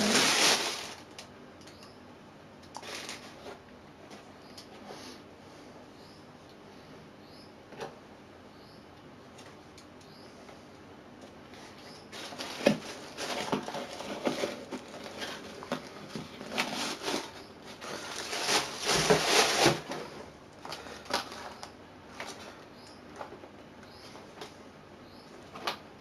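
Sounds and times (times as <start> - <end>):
tissue paper rustling: 0.0 - 1.1, 2.8 - 3.5, 12.1 - 20.2.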